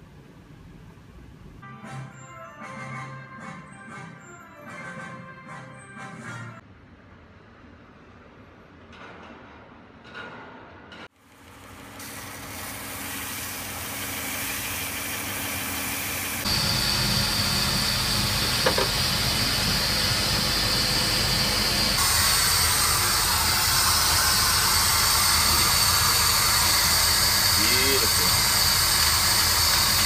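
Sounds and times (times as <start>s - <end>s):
laser cutter hiss and whine: 12.4s - 30.0s.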